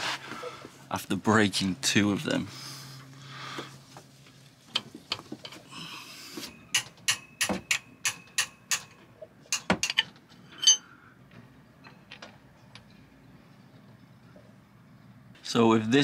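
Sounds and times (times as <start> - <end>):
ringing metal clink: 6.6 - 9.0, 9.6 - 10.9
spanner clicking on a nut: 6.7 - 10.8.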